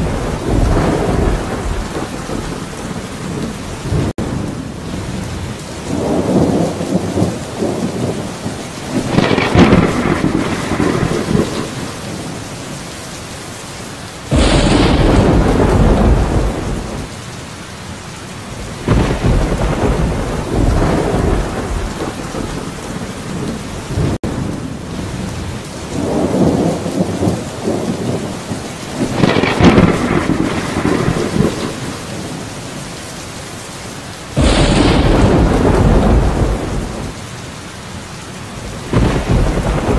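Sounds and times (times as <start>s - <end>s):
loud thunderclap: 0.0s - 4.4s, 5.9s - 12.1s, 14.3s - 17.1s, 18.8s - 24.6s, 26.0s - 32.3s, 34.3s - 37.2s, 38.6s - 39.9s
rolling thunder rumbles: 0.0s - 12.9s, 14.2s - 17.2s, 18.5s - 33.0s, 34.2s - 37.4s, 38.5s - 39.9s
steady rain: 0.0s - 39.9s.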